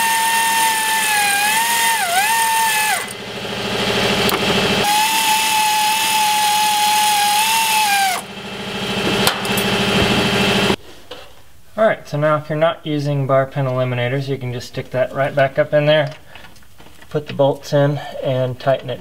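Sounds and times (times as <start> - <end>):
power tool whining: 0.0 - 10.8.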